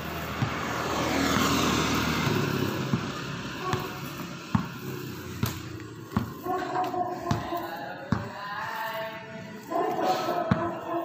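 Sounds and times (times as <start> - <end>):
vehicle passing by: 0.0 - 7.6.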